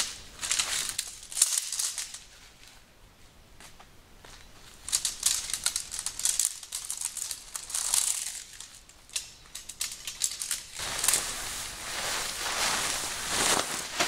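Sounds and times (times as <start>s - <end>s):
tent poles clicking and clattering: 0.0s - 2.7s, 4.8s - 11.5s, 12.3s - 14.0s
crisp rustling: 4.7s - 14.0s.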